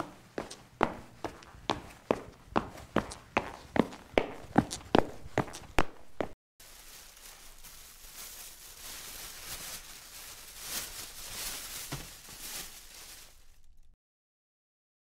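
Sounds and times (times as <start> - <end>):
corn husks crackling: 6.6 - 13.9
plastic bag rustling: 6.6 - 14.0.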